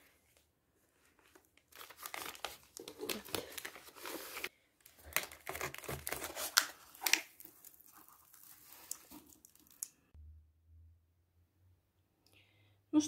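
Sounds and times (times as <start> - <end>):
cardboard mailer tearing: 1.8 - 7.6.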